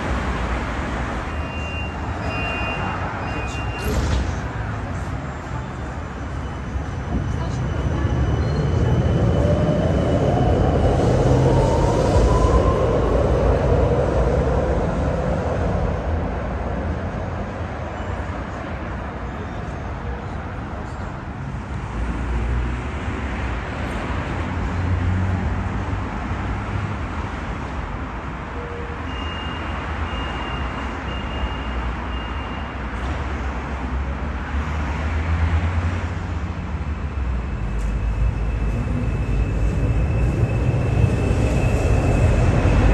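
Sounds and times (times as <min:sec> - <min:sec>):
tram motor whine: 0:37.4 - 0:42.9.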